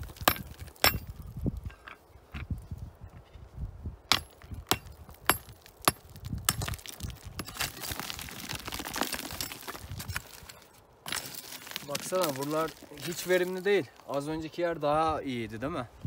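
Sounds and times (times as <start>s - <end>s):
adze striking rock: 0.0s - 1.1s, 4.1s - 9.6s
raking through rock chips: 6.6s - 14.0s.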